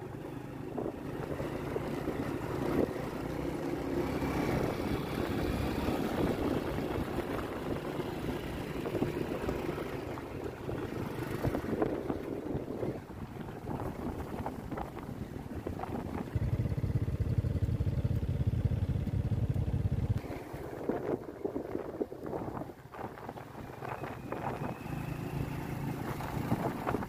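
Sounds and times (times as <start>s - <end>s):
motorcycle engine running: 0.0s - 22.6s
wind on microphone: 4.3s - 17.4s, 20.2s - 27.0s.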